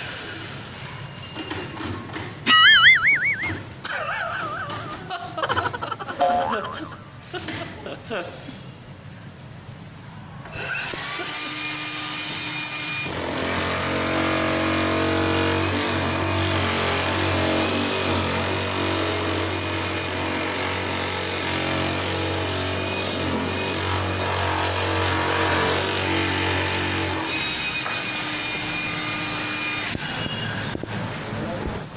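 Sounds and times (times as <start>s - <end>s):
demolition hammer chipping concrete: 10.8s - 30.0s.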